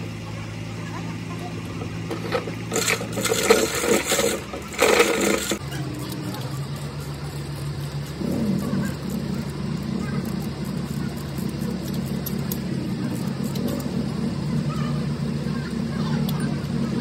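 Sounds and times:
engine droning: 0.0 - 17.0
hand tools clicking: 2.1 - 14.9.

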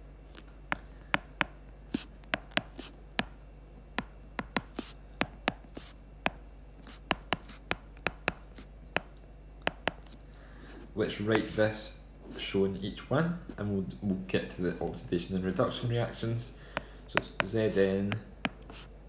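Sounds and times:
stylus tapping on tablet screen: 0.7 - 3.4, 4.0 - 5.6, 6.3 - 9.1, 9.7 - 10.1.

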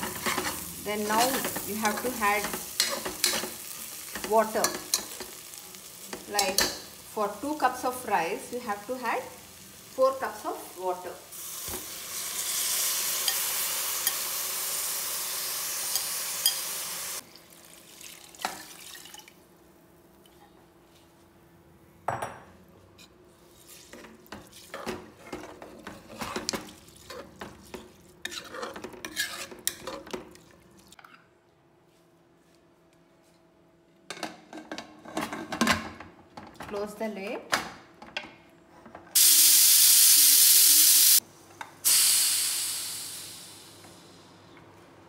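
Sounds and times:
rice hissing and crackling in oil: 11.3 - 17.9, 39.2 - 41.2, 41.8 - 43.9
metal spoon scraping a pot: 23.0 - 30.2.

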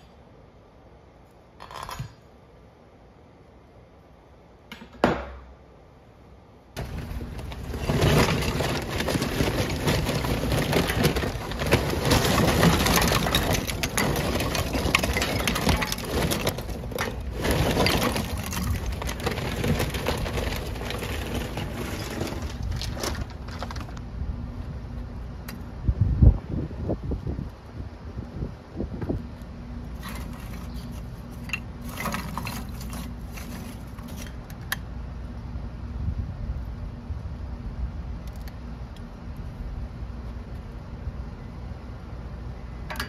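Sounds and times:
charcoal crackling and sizzling: 6.8 - 24.0, 29.9 - 34.5.

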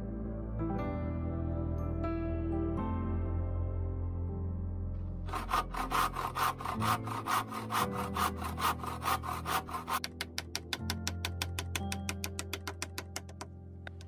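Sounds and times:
hand saw cutting wood: 5.3 - 10.3.

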